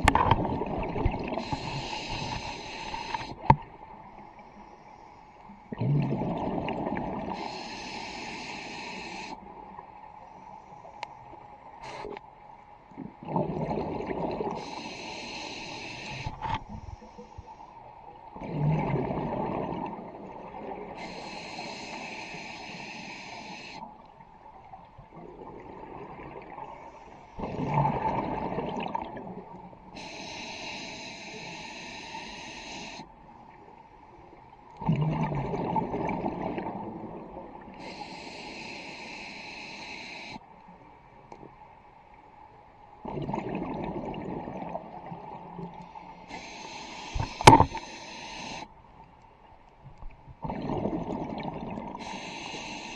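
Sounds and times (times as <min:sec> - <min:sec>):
exhaled bubbles burbling: 0:00.0 - 0:01.8, 0:05.7 - 0:07.4, 0:13.0 - 0:14.6, 0:18.4 - 0:20.9, 0:27.4 - 0:29.5, 0:34.8 - 0:37.5, 0:43.0 - 0:45.7, 0:50.4 - 0:52.0
regulator inhale hiss: 0:01.3 - 0:03.5, 0:07.3 - 0:09.5, 0:11.8 - 0:12.2, 0:14.5 - 0:17.7, 0:20.9 - 0:24.0, 0:29.9 - 0:33.2, 0:37.7 - 0:40.5, 0:45.8 - 0:48.8, 0:52.0 - 0:52.9.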